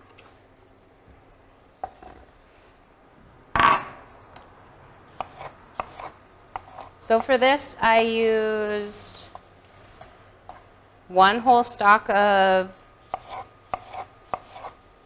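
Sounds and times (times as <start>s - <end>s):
knife chopping on wooden board: 5.2s - 7.3s, 13.1s - 14.8s.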